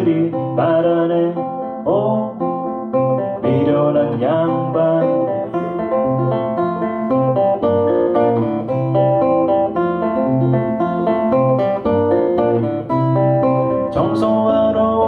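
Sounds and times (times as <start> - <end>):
acoustic guitar picking chords: 0.0 - 15.0.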